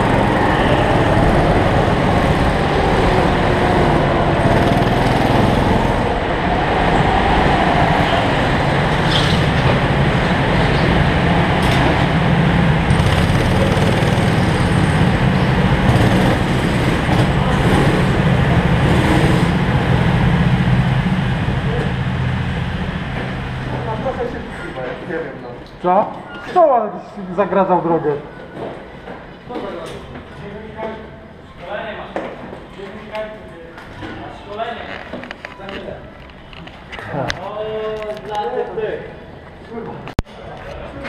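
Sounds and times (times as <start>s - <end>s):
go-kart engines running: 0.0s - 24.8s.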